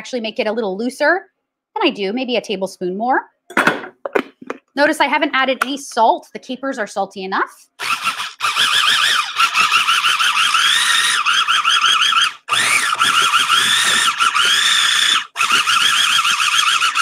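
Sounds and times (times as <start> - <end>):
food processor motor whining: 7.8 - 17.0.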